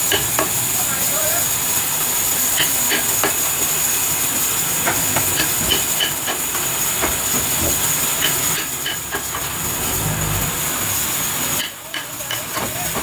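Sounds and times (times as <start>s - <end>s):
steady high hiss: 0.0s - 11.7s.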